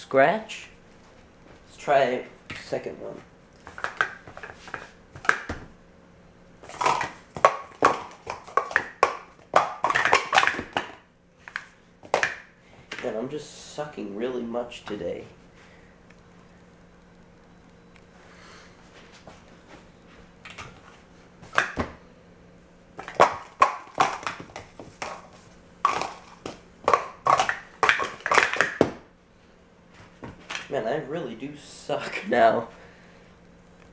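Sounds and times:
plastic cups clacking: 0:03.6 - 0:05.5, 0:06.6 - 0:13.1, 0:23.0 - 0:29.0.

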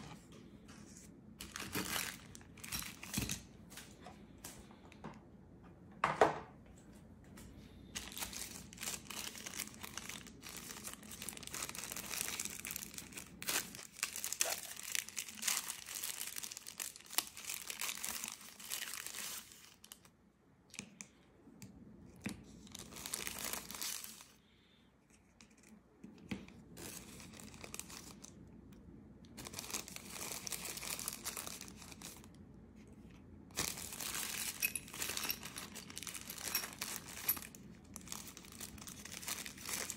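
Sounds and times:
tissue paper rustling and crinkling: 0:00.8 - 0:03.2, 0:07.9 - 0:20.1, 0:22.6 - 0:24.4, 0:26.8 - 0:28.4, 0:29.4 - 0:39.9.

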